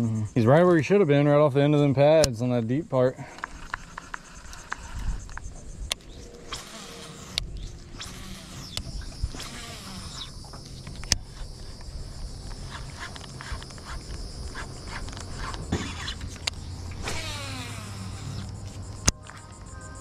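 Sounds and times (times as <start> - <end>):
steady low hum: 0.0 - 20.0
fishing reel cranking: 3.4 - 5.4, 6.2 - 18.6
fishing reel spool whirring: 3.5 - 19.1.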